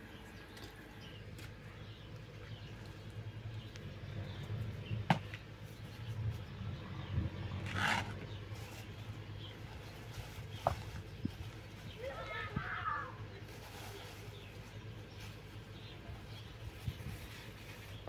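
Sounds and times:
short rustling scrape: 0:07.6 - 0:09.0.

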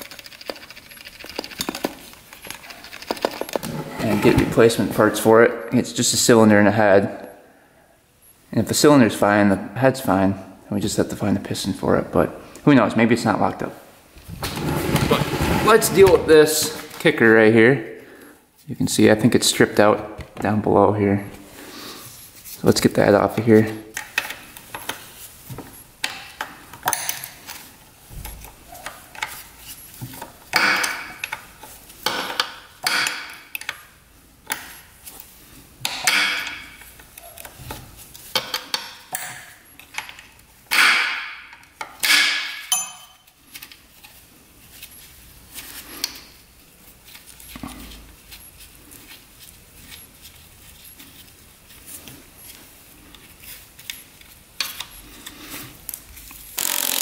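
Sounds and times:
wrench clinking and scraping on bolt: 0:30.5 - 0:33.8, 0:38.3 - 0:43.3.

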